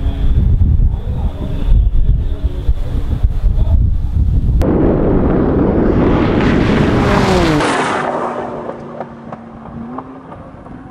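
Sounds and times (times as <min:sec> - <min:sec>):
wind buffeting microphone: 0:00.0 - 0:10.9
sports car passing at high speed: 0:05.4 - 0:10.9.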